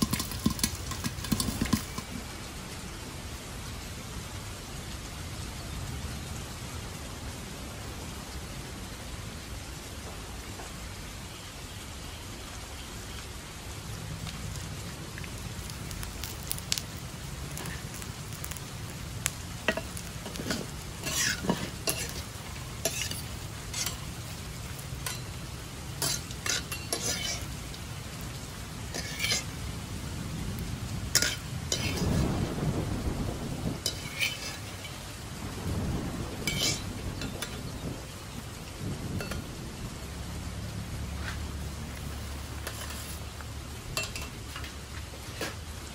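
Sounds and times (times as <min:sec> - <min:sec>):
scraping in metal pan: 0:00.0 - 0:02.1, 0:19.7 - 0:24.1, 0:26.0 - 0:27.5, 0:28.9 - 0:29.5, 0:31.2 - 0:32.2, 0:33.9 - 0:35.0, 0:42.6 - 0:43.2
steady rain: 0:00.0 - 0:45.9
metal spatula clinking in pan: 0:22.8 - 0:24.0, 0:26.0 - 0:27.4, 0:44.0 - 0:44.3.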